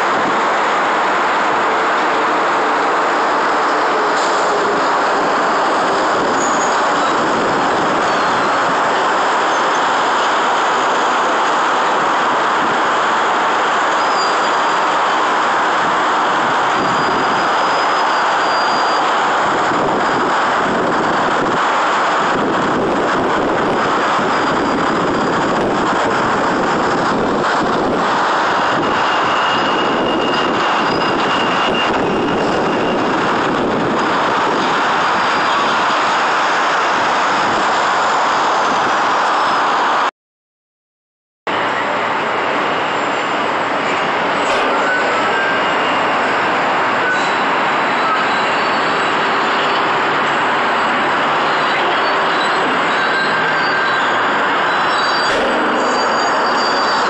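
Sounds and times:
demolition excavators running: 0.0 - 40.0, 41.5 - 57.0
city traffic roar: 0.0 - 40.1, 41.5 - 57.0
faint high squeals: 6.2 - 7.3, 44.4 - 50.0, 51.4 - 57.0.

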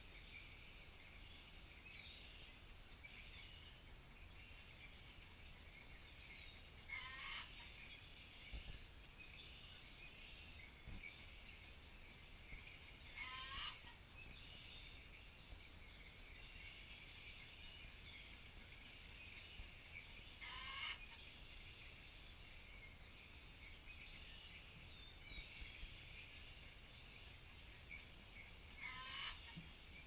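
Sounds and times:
faint rolling animal calls: 6.9 - 7.8, 13.1 - 14.0, 20.4 - 21.2, 28.8 - 29.7.

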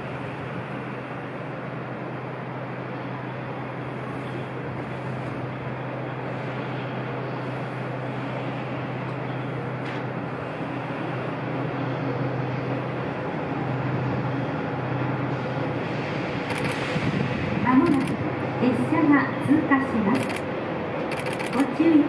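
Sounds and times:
city noise: 0.0 - 22.0
locomotive engine drone: 0.0 - 22.0.

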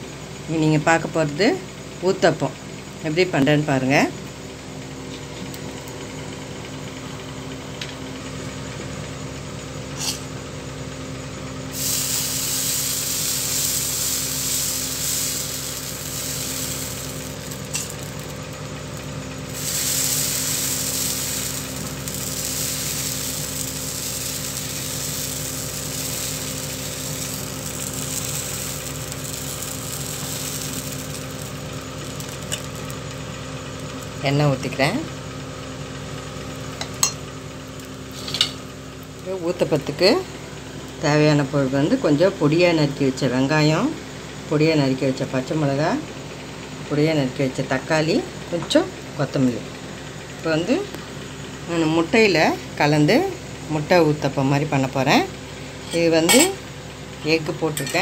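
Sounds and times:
steady low hum: 1.5 - 44.0
batter sizzling on hot griddle: 8.4 - 42.4, 49.8 - 54.3, 55.2 - 58.0.

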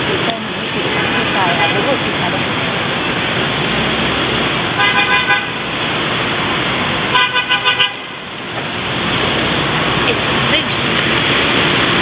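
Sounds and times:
horn honking: 4.6 - 5.8, 6.9 - 8.4.

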